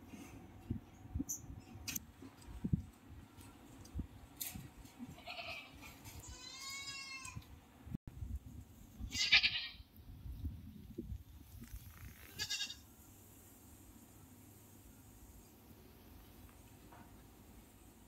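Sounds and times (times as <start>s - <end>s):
young goats bleating: 5.1s - 7.5s, 9.1s - 9.8s, 12.3s - 12.8s.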